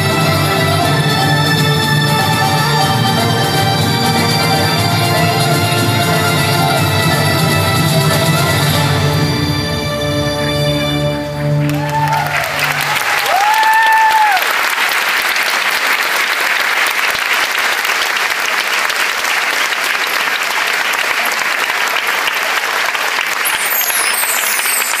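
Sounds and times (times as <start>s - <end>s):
audience applauding: 0.0s - 9.4s, 10.9s - 25.0s
stage music: 0.0s - 14.6s, 23.2s - 25.0s.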